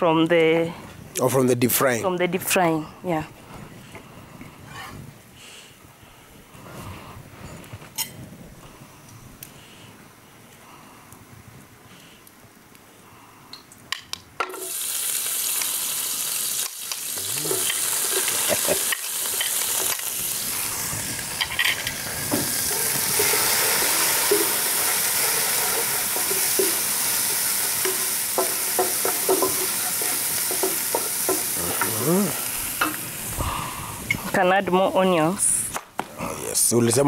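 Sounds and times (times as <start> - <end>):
food sizzling in oil: 14.4 - 35.7.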